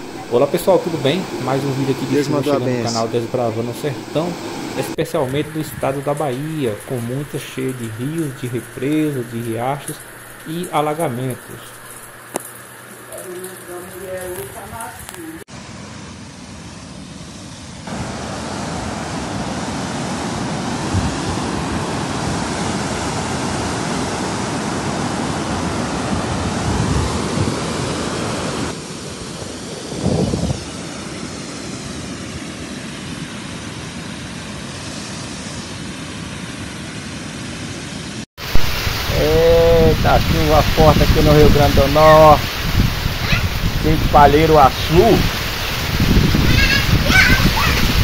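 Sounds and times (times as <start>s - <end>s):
water rushing over a spillway: 0.0s - 15.5s, 38.4s - 48.0s.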